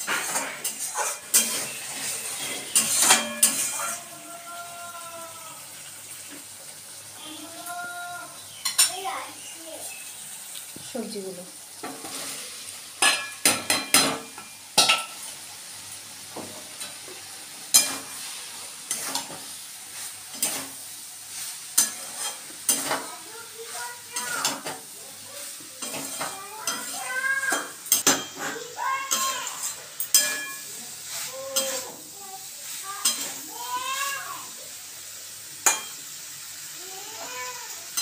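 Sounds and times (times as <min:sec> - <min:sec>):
metal spatula scraping pan: 0:00.0 - 0:04.2, 0:17.7 - 0:19.4, 0:20.3 - 0:24.8, 0:25.4 - 0:32.1, 0:32.7 - 0:33.5
light sizzle: 0:00.0 - 0:38.0.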